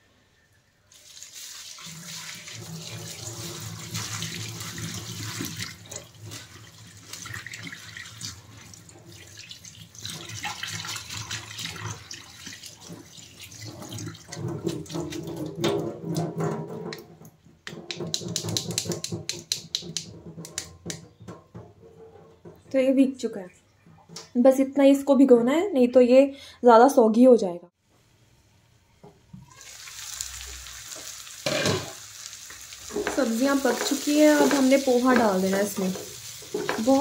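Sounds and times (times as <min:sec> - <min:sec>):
tap water running into strainer: 0:01.0 - 0:16.2, 0:29.5 - 0:37.0.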